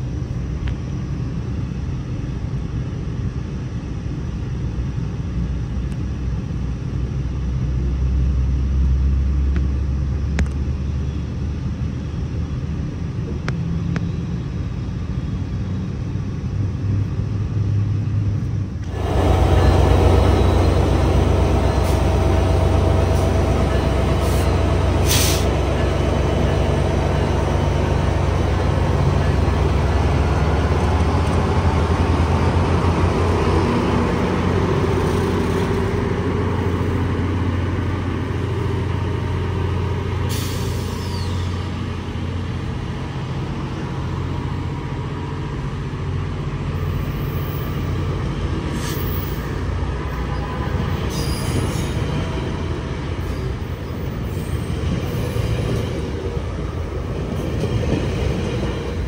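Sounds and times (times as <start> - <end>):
diesel locomotive engine drone: 0.0 - 59.0
air hissing: 18.9 - 28.2, 40.2 - 41.8.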